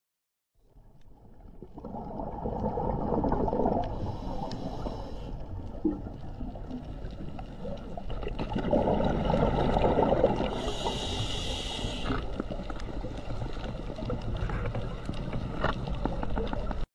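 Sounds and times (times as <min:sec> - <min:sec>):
underwater rush of water: 0:00.9 - 0:16.8
faint clicks: 0:03.8 - 0:05.3
bright hiss: 0:10.6 - 0:12.2.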